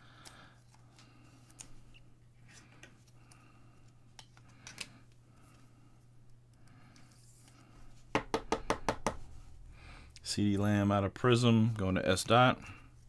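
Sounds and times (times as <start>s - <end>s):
low electrical hum: 0.0s - 13.0s
trading cards rustling and clicking: 0.2s - 5.6s.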